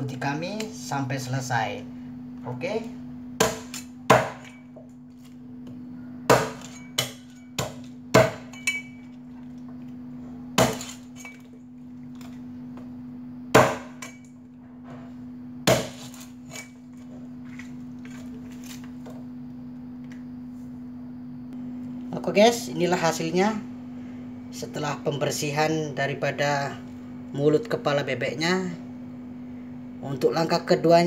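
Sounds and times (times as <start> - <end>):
steady low hum: 0.0 - 31.0
cleaver chopping on block: 3.4 - 4.6, 6.3 - 8.6, 10.6 - 11.0, 13.5 - 14.1, 15.7 - 16.2.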